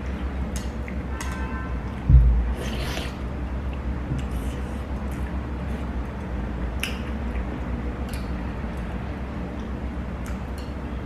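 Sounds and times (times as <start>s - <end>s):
low hum: 1.8s - 2.8s
chopsticks clicking against a bowl: 6.8s - 8.9s, 9.5s - 10.8s.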